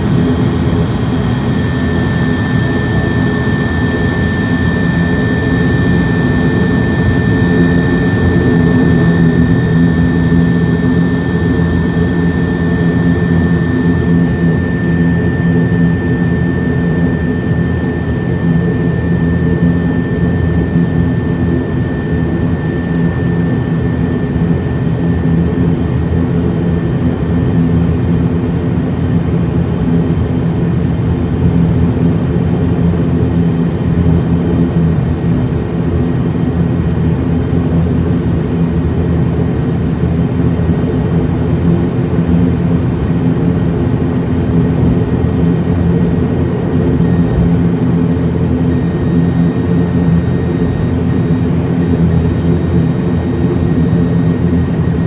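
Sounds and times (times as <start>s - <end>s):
turboprop engines droning: 0.0s - 55.0s
faint whine: 40.7s - 55.0s.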